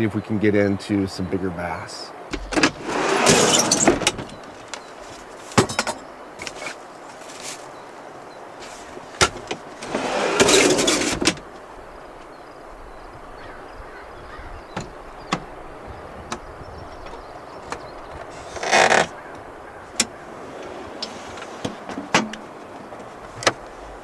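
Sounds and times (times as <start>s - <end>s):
rustle or scrape: 2.8s - 7.8s, 8.6s - 9.2s, 9.8s - 11.4s, 18.3s - 19.2s, 20.3s - 24.0s
light clicks and knocks: 16.2s - 23.8s.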